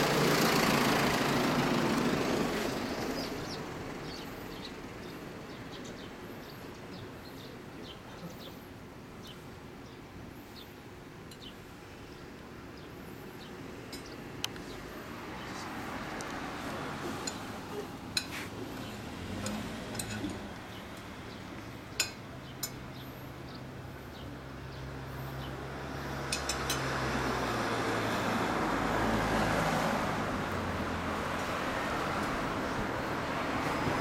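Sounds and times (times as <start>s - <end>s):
vehicle passing by: 0.0s - 5.5s, 14.6s - 21.7s, 23.8s - 34.0s
street traffic: 0.0s - 34.0s.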